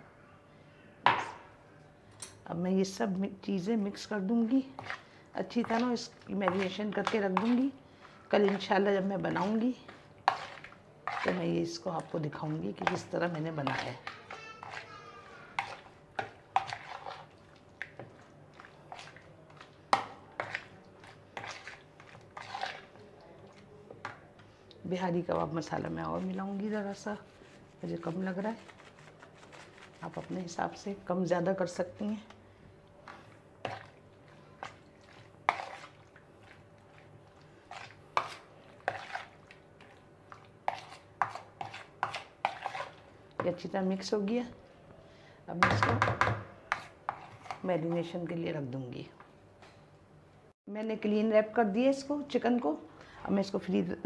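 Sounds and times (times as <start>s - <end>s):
fork scraping plastic bowl: 4.7s - 5.0s, 5.6s - 7.7s, 8.4s - 17.4s, 20.4s - 23.0s, 25.9s - 30.8s, 33.1s - 34.0s, 34.6s - 37.0s, 37.6s - 43.6s, 46.7s - 48.1s
wet squelches: 4.8s - 14.9s, 15.5s - 24.8s, 32.9s - 43.0s.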